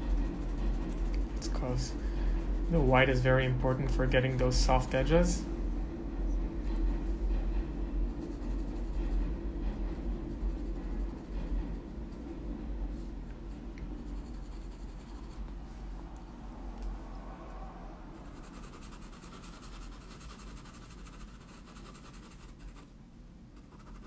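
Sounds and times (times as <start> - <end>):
low room hum: 0.0 - 24.0
colored pencil shading on paper: 8.1 - 9.2, 10.0 - 11.3, 14.0 - 15.4, 18.2 - 22.9, 23.6 - 24.0.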